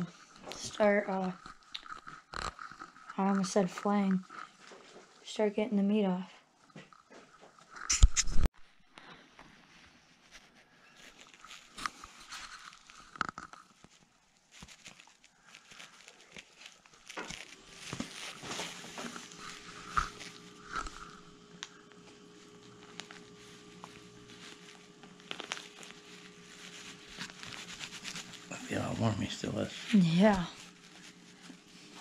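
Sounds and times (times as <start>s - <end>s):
soft crackles and clicks: 0.0s - 6.0s, 10.2s - 32.0s
hands rustling feathers: 9.4s - 32.0s.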